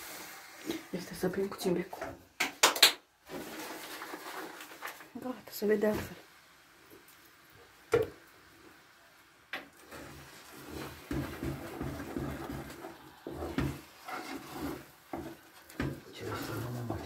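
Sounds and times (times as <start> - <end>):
wooden stick scraping metal pot: 9.8 - 17.0
stick knocking against pot: 11.1 - 13.8, 15.1 - 16.1.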